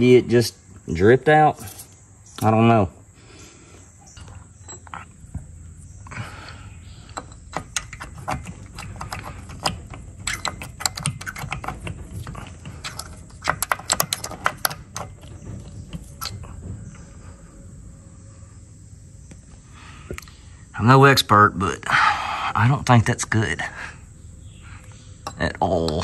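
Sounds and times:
metal tool clicking and scraping: 7.1s - 15.4s.

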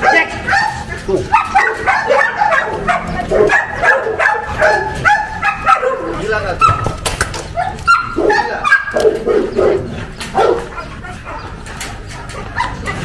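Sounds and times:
dog barking: 0.0s - 13.0s
dog whining: 7.5s - 13.0s.

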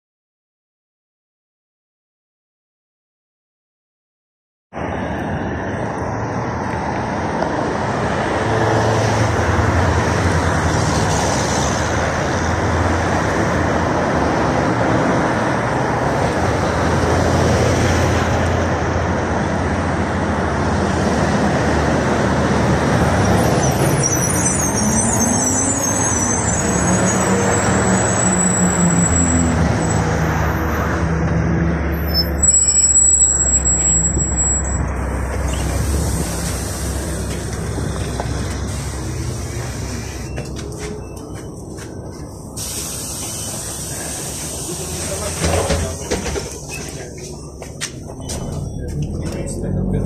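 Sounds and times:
bus engine: 4.8s - 50.0s
cars passing: 4.8s - 50.0s
high brake squeal: 23.0s - 30.9s, 31.9s - 37.2s, 38.7s - 41.6s, 42.6s - 47.6s.

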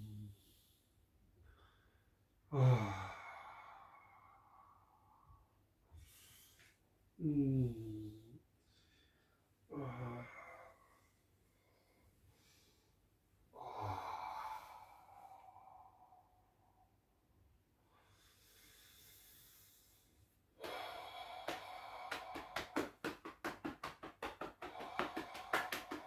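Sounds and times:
quiet breathing: 0.0s - 23.0s, 24.5s - 26.0s
man breathing out: 20.6s - 22.8s.

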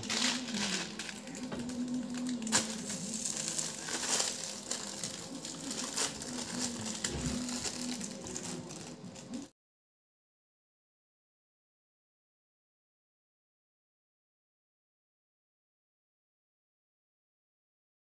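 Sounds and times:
hands crunching snacks in steel bowl: 0.0s - 9.5s.

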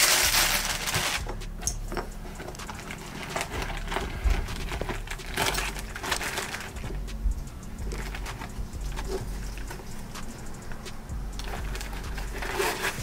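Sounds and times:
paper rustling and crinkling: 0.0s - 1.4s, 2.2s - 7.0s, 11.4s - 13.0s.

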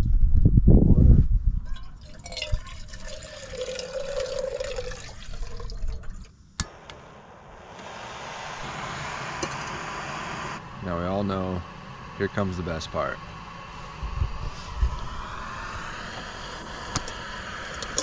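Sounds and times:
water pouring into a pot: 1.9s - 6.3s
gas stove hissing: 6.6s - 18.0s.

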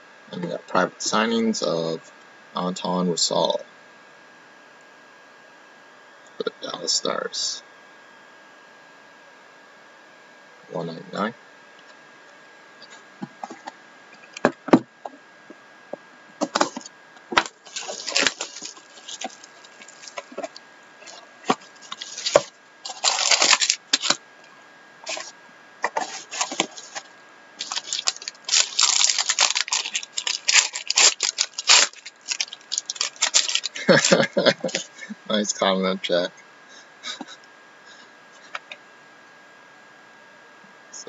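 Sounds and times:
plastic wrapper crinkling: 16.5s - 24.2s, 25.0s - 34.9s.

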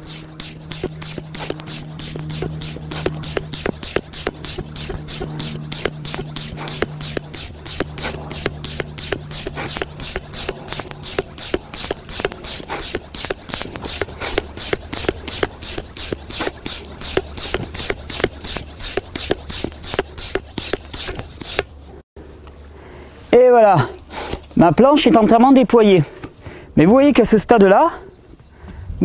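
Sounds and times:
hand pump hissing: 0.0s - 21.8s.

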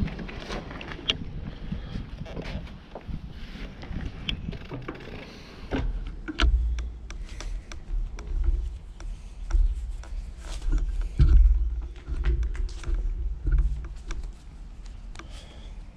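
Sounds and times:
wind buffeting microphone: 0.0s - 4.9s
irregular clicks: 4.2s - 15.9s.

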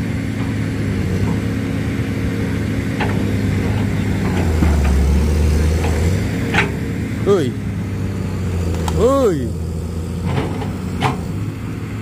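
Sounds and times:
excavator diesel engines running: 0.0s - 12.0s.

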